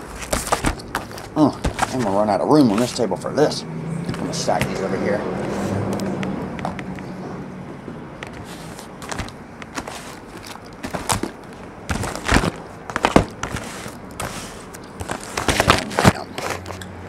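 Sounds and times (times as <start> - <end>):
cardboard boxes knocking on table: 0.3 - 2.2, 9.0 - 14.4, 15.0 - 16.3.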